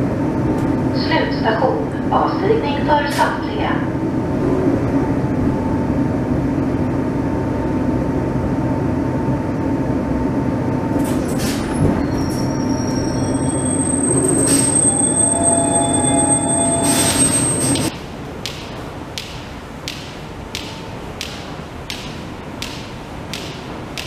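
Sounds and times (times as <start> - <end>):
metro train rumbling and braking: 0.0 - 19.1
wheel and brake squeals: 11.1 - 17.9.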